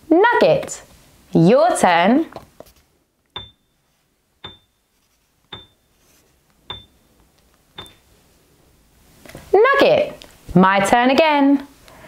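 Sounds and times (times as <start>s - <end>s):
sharp ticks with high ping: 5.5s - 5.8s, 7.8s - 8.0s.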